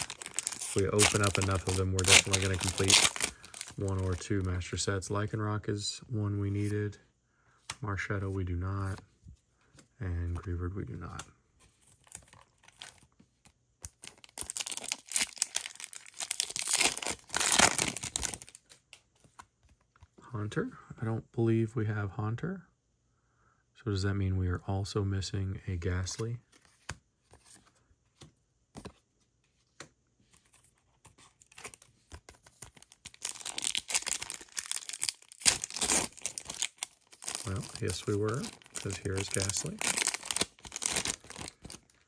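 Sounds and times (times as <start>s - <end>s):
foil wrapper crinkling and tearing: 0.0s - 4.3s, 13.8s - 18.6s, 32.6s - 42.0s.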